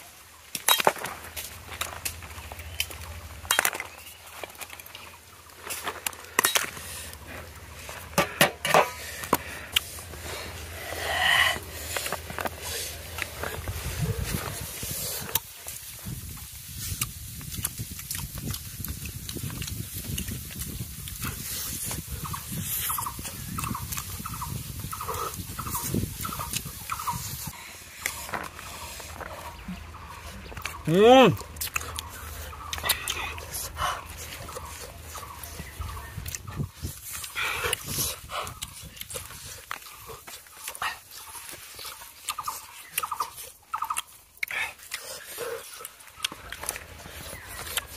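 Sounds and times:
people chewing food: 0:00.0 - 0:47.9
sharp mouth clicks: 0:16.9 - 0:27.2, 0:31.4 - 0:41.0, 0:41.8 - 0:47.9
wet mouth smacking: 0:17.0 - 0:21.2, 0:31.4 - 0:34.7.

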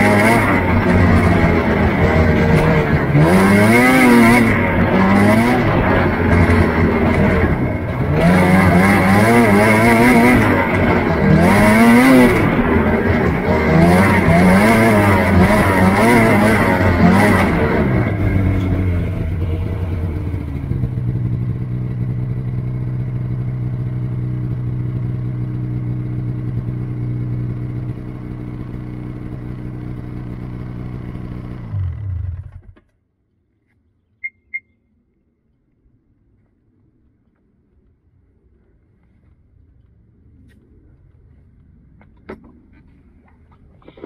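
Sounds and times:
engine idling: 0:00.0 - 0:32.9
short high beeps: 0:34.2 - 0:34.9.

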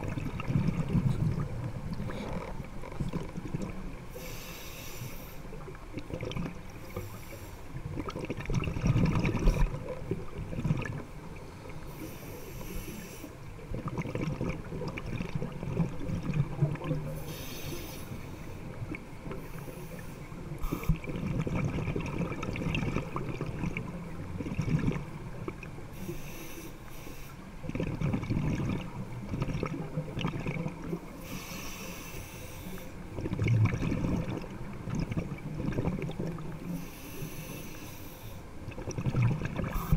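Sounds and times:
exhaled bubbles underwater: 0:00.0 - 0:04.4, 0:05.4 - 0:07.2, 0:07.8 - 0:12.1, 0:12.8 - 0:17.8, 0:18.6 - 0:26.2, 0:27.6 - 0:31.4, 0:33.0 - 0:37.3, 0:38.5 - 0:39.9
regulator inhalation hiss: 0:04.2 - 0:05.5, 0:11.9 - 0:13.4, 0:17.2 - 0:18.7, 0:26.0 - 0:27.4, 0:31.2 - 0:33.0, 0:36.7 - 0:38.5.

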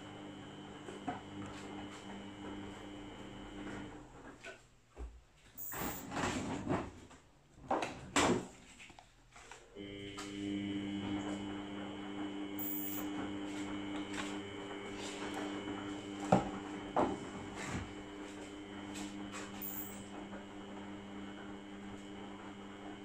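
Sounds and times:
appliance motor humming: 0:00.0 - 0:04.2, 0:05.6 - 0:06.3, 0:09.8 - 0:23.0.

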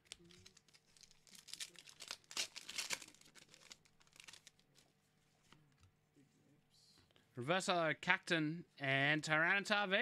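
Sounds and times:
foil wrapper crinkling and tearing: 0:00.0 - 0:04.8.

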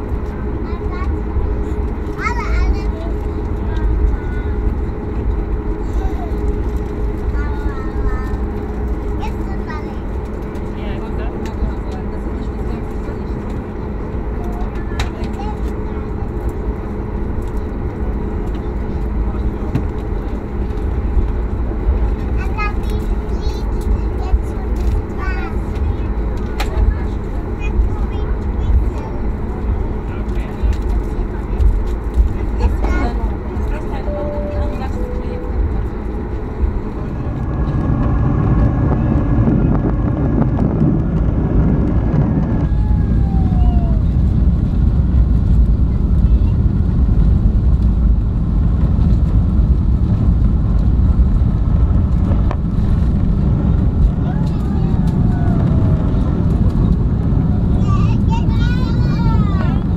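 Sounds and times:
airliner cabin rumble and hum: 0:00.0 - 0:59.9
short falling whine: 0:34.1 - 0:44.0.

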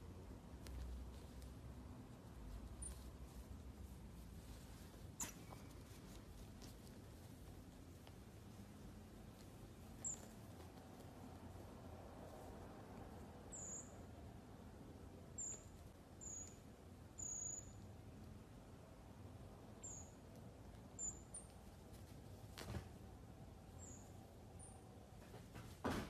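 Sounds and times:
marmosets chirping: 0:02.6 - 0:03.4, 0:05.1 - 0:06.0, 0:09.8 - 0:10.5, 0:13.4 - 0:14.1, 0:15.3 - 0:17.9, 0:19.8 - 0:20.2, 0:20.9 - 0:21.6, 0:23.7 - 0:24.8.

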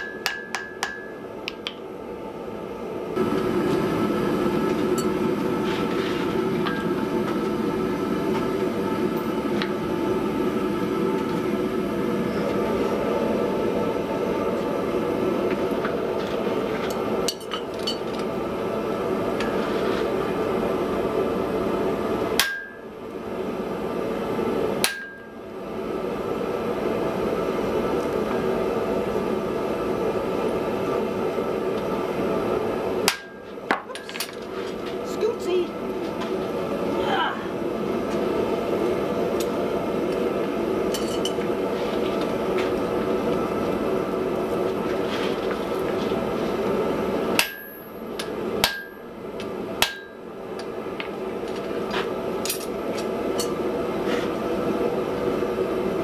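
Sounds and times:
hammer striking iron on anvil: 0:00.0 - 0:01.8, 0:22.4 - 0:22.9, 0:24.8 - 0:25.3, 0:33.1 - 0:33.8, 0:47.4 - 0:49.0, 0:49.8 - 0:50.2.

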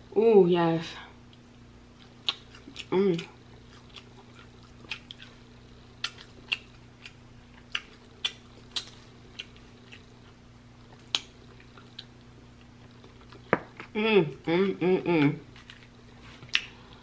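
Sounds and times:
faint low hum: 0:00.0 - 0:17.0
wet eating smacks and clicks: 0:02.0 - 0:02.9, 0:03.7 - 0:05.4, 0:06.0 - 0:10.1, 0:11.0 - 0:12.1.

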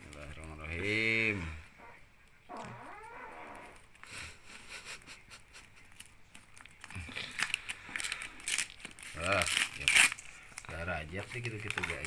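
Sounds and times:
paper envelope tearing: 0:06.8 - 0:12.0.

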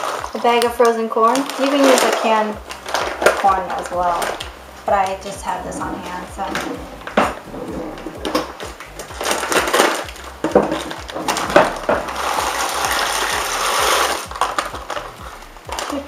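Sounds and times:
scissors snipping plastic: 0:00.0 - 0:04.5, 0:08.8 - 0:13.1
plastic bag crinkling: 0:00.0 - 0:16.0.

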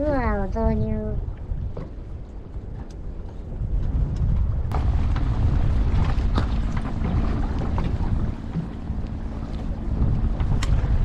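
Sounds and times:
low rumble of water: 0:00.0 - 0:11.0
wind buffeting microphone: 0:00.0 - 0:11.0
steady low hum: 0:04.5 - 0:11.0.

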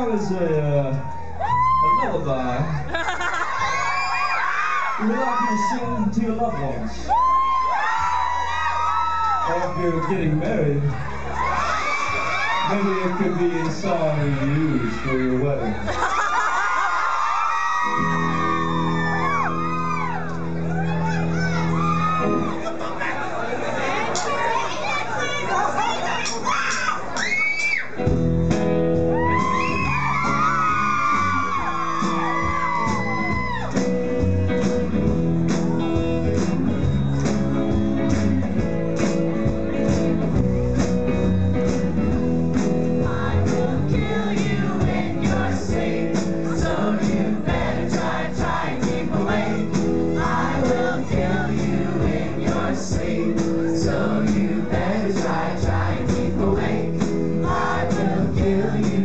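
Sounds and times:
crowd whooping: 0:00.6 - 0:38.6
live rock band playing: 0:17.8 - 0:23.0, 0:27.9 - 0:59.0
person singing: 0:43.3 - 0:59.0.

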